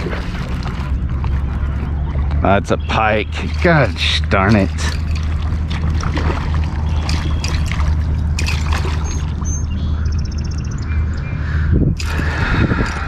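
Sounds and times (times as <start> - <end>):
fish splashing in water: 0.0 - 9.7.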